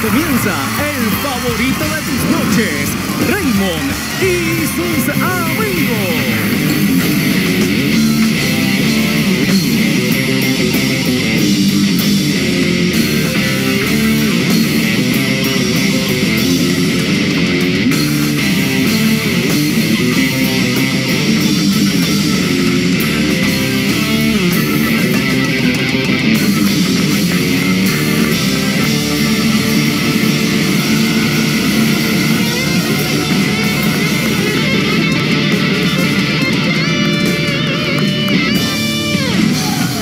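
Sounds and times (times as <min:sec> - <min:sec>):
electric guitar: 0:00.0 - 0:40.0
live rock band playing: 0:00.0 - 0:40.0.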